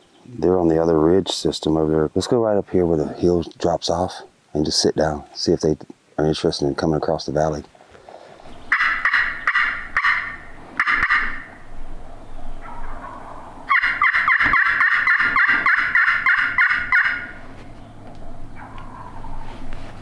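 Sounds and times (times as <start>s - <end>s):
turkey call yelps: 8.7s - 11.7s, 12.6s - 17.4s, 18.5s - 19.5s.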